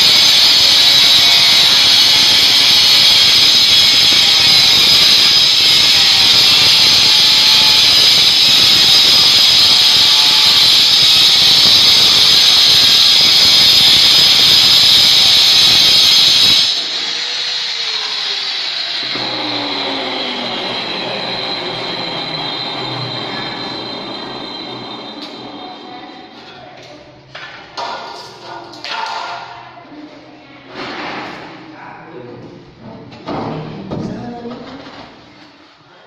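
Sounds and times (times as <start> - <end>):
angle grinder cutting stone: 0.0 - 26.0
grinder whine falling in pitch: 0.0 - 26.4.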